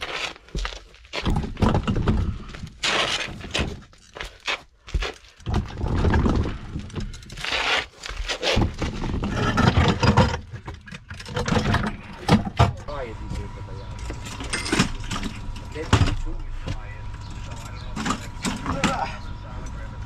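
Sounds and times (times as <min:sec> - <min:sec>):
person crawling on dirt: 0:00.0 - 0:01.4, 0:02.3 - 0:09.0.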